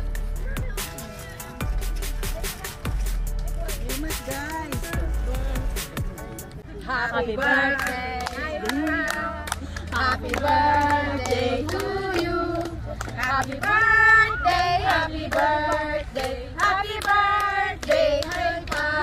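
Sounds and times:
group of voices singing: 6.8 - 19.0
hands clapping in a steady beat: 7.7 - 14.0, 14.8 - 19.0.

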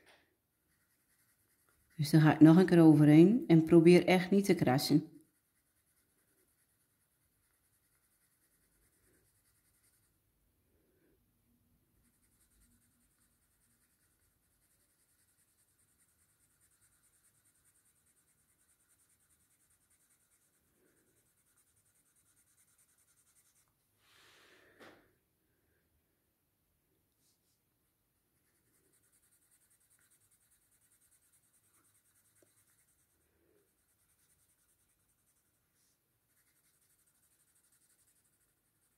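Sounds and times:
pencil shading on paper: 0.6 - 3.1, 4.4 - 10.2, 12.0 - 23.7, 28.4 - 38.9.

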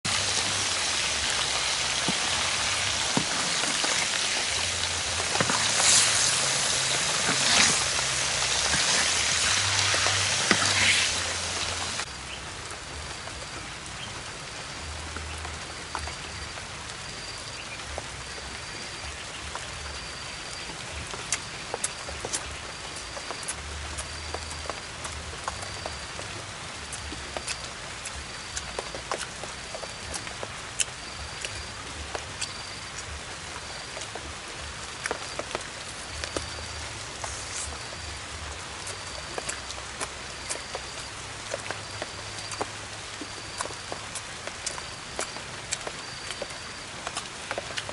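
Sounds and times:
hot oil sizzling: 0.1 - 12.4, 35.0 - 44.2.

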